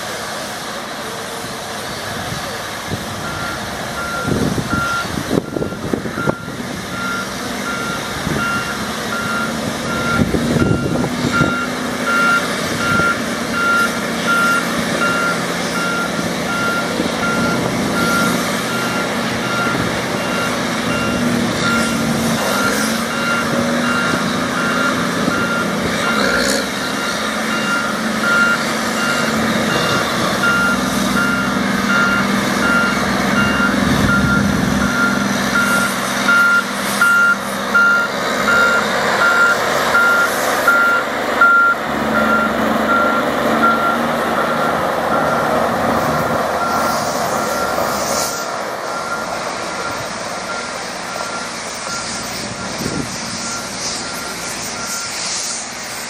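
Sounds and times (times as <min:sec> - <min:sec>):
diesel engine running: 0:00.0 - 0:56.0
backup alarm beeping: 0:26.9 - 0:45.5.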